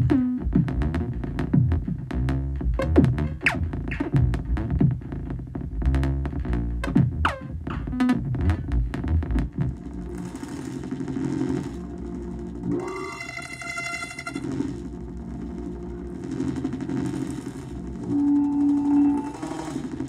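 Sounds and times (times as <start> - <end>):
synthesizer plucked percussive notes: 6.0 - 20.0.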